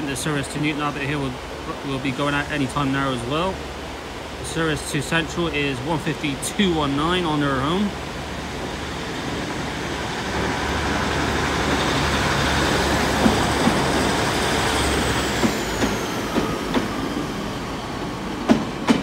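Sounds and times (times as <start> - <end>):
diesel train engine hum: 0.0 - 19.0
rain hiss: 0.0 - 19.0
wheels clicking over rail joints: 11.2 - 17.2, 18.3 - 19.0.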